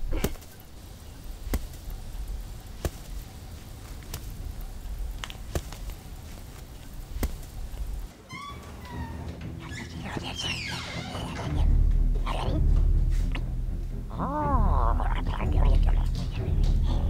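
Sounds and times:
low steady rumble: 0.0 - 8.1, 11.4 - 16.1
broom whacking rugs: 0.0 - 8.2.

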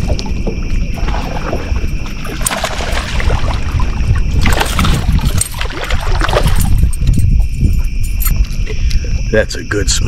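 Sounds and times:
fish thrashing water splashing: 1.0 - 7.0.

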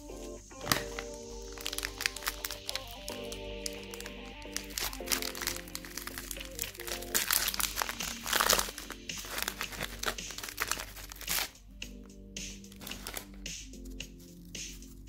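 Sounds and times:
soft background music: 0.0 - 15.0
plastic wrapper crinkling: 0.6 - 11.6, 12.6 - 15.0.

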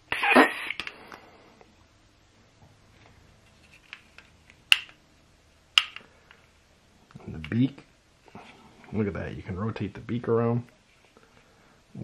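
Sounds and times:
sharp plastic clicks: 5.8 - 6.1.

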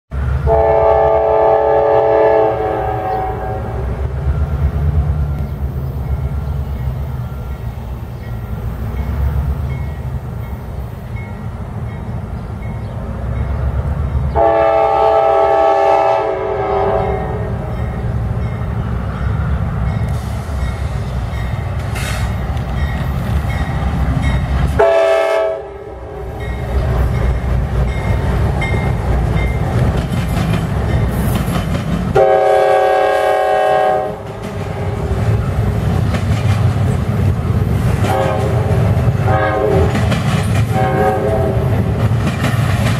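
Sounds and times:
diesel locomotive engines under load: 0.1 - 42.9
locomotive horn: 0.4 - 4.1, 14.4 - 17.7, 24.8 - 26.4, 32.1 - 35.2, 38.0 - 40.1, 40.7 - 41.9
steel wheels rolling on rails: 26.2 - 32.2, 34.1 - 42.9.

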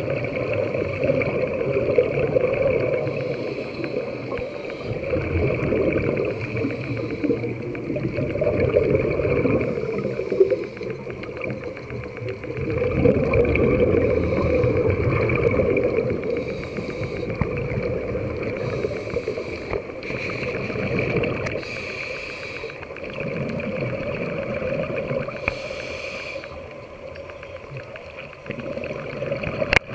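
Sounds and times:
underwater rumble and bubbles: 0.0 - 29.9.

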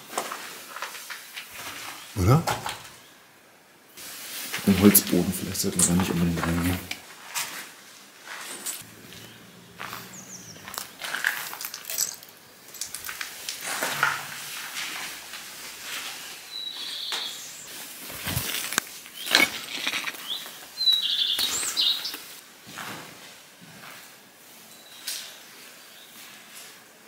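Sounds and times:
footsteps crunching on debris: 5.8 - 16.2, 17.7 - 23.0
small bird chirping: 8.8 - 11.2, 19.2 - 22.3.

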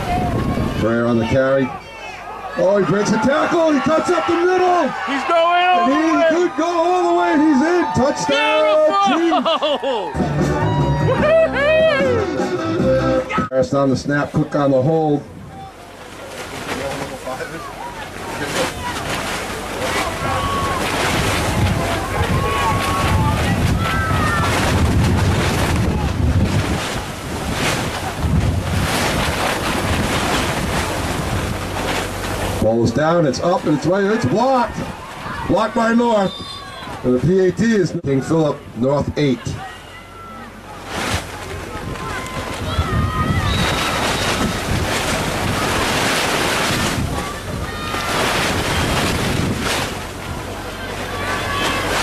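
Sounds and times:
wind buffeting microphone: 0.0 - 1.8, 17.4 - 37.1, 41.2 - 52.0
faint distant voices calling: 37.8 - 45.8, 50.0 - 52.0.

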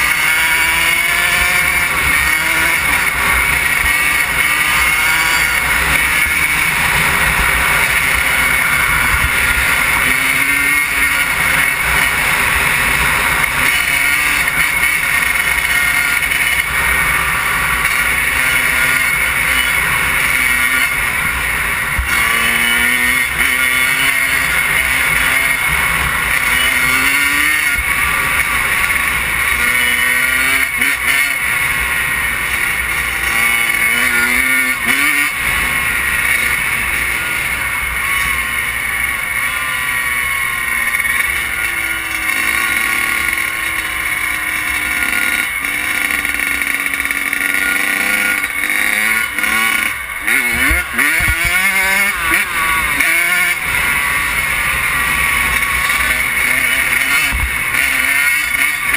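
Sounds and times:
dirt bike engine pulling hard: 0.0 - 58.9.

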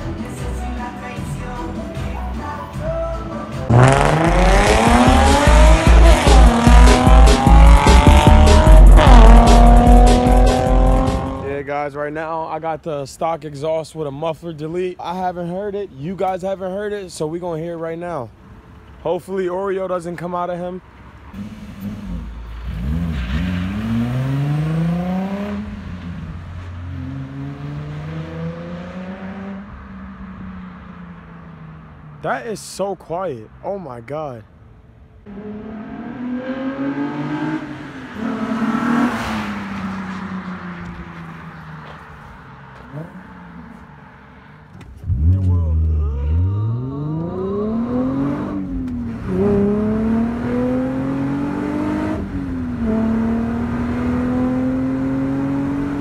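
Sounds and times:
music with pulsing bass beat: 3.6 - 11.4
car engine revving: 3.6 - 11.6, 21.3 - 32.4, 35.2 - 56.0.

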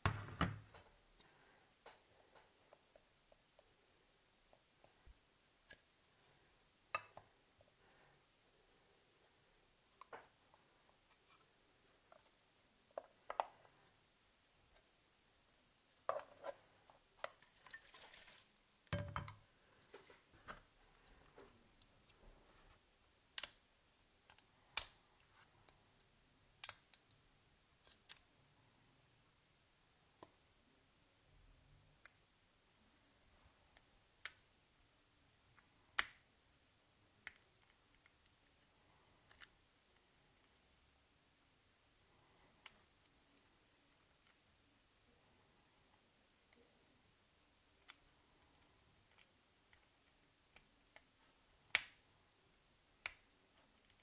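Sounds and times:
small plastic and metal clicks: 26.6 - 27.2.

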